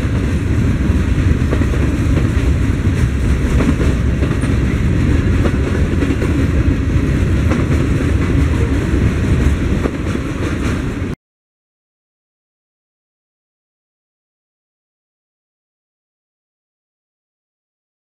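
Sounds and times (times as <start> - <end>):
freight train cars rolling past: 0.0 - 11.2
wheels clicking over rail joints: 0.0 - 11.2.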